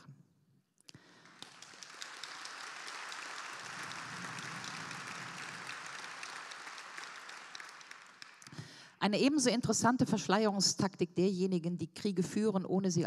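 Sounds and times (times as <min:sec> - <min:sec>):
audience applauding: 0:01.0 - 0:08.8.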